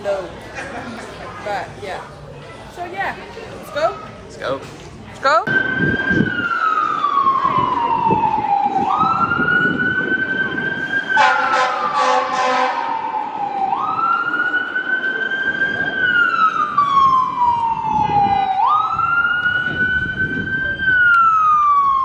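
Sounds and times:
emergency siren wailing: 5.5 - 22.0
short harsh horn blast: 11.2 - 13.0.

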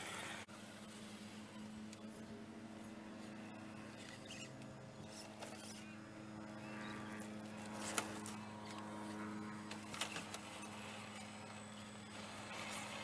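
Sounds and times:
electric motor whine: 0.0 - 13.0.

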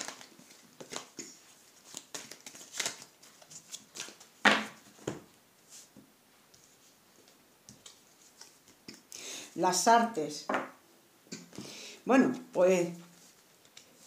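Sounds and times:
cards shuffling: 0.0 - 4.9.

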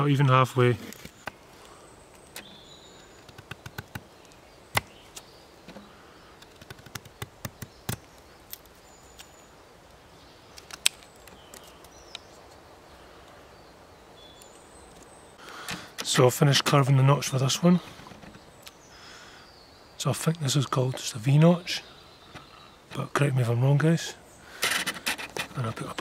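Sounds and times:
wood chips cracking: 10.6 - 12.2.

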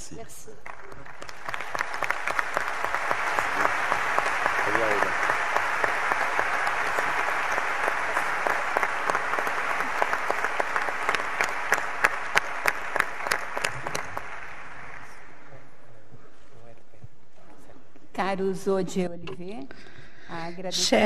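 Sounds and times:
audience applauding: 0.5 - 15.6.

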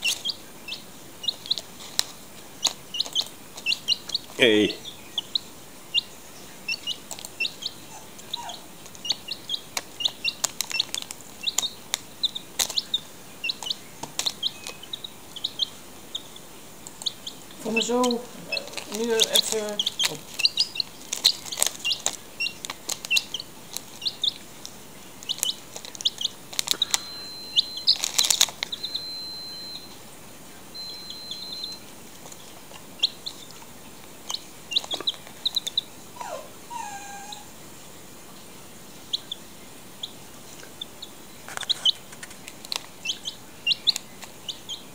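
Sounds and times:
chick peeping: 0.0 - 37.5, 38.4 - 44.9
foil packet crinkling: 1.3 - 4.6, 9.7 - 13.0, 13.6 - 14.9, 17.6 - 27.2, 27.8 - 28.8, 41.5 - 43.1.

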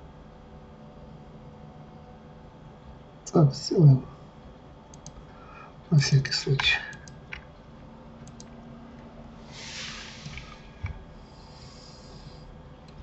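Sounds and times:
keyboard and mouse clicks: 4.9 - 5.2, 8.2 - 8.5
soft breath: 5.3 - 5.8, 9.4 - 12.6.

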